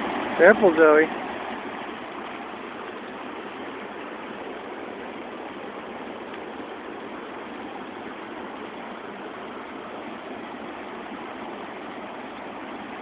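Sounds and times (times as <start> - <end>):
river water rushing over rapids: 0.0 - 13.0.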